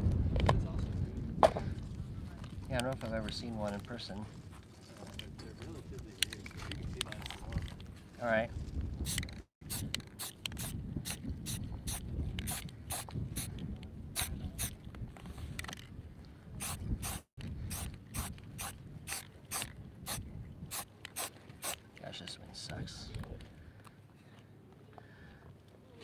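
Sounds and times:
spray paint can hissing: 9.0 - 13.5, 16.6 - 21.8.

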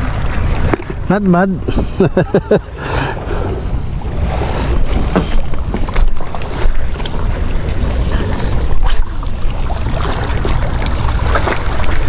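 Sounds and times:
sea noise: 0.0 - 12.0.

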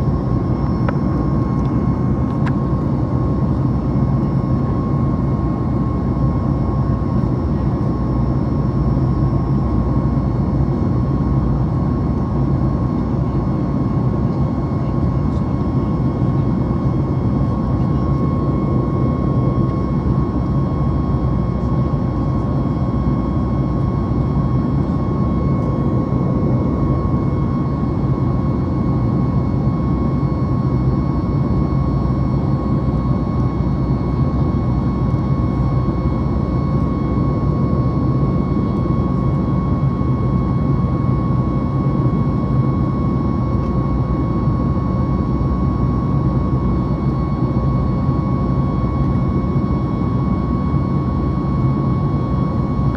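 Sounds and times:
airplane cabin engine rush: 0.0 - 52.9.

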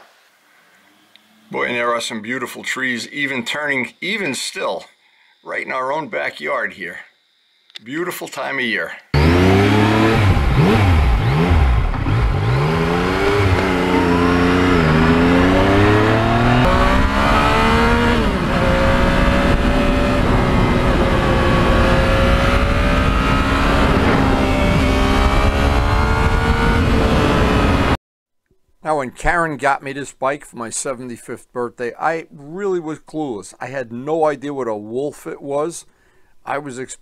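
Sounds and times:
motorcycle engine accelerating: 9.2 - 28.0.

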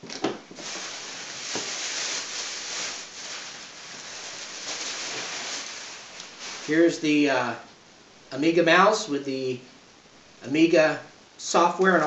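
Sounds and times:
packing wrap rustling and crackling: 0.5 - 7.0.

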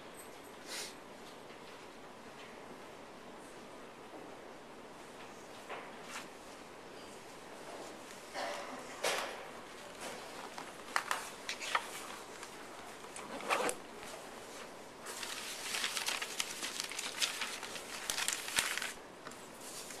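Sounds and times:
paper rustling and crinkling: 9.9 - 20.0.

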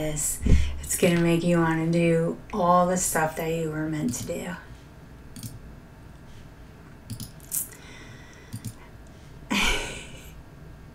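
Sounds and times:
small clicks: 5.4 - 5.6, 7.1 - 7.8, 8.5 - 8.8.

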